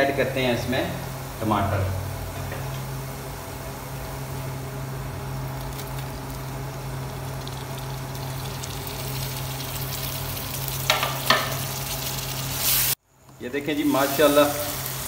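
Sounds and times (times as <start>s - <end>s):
onions sizzling in hot oil: 2.6s - 13.0s, 13.7s - 15.0s.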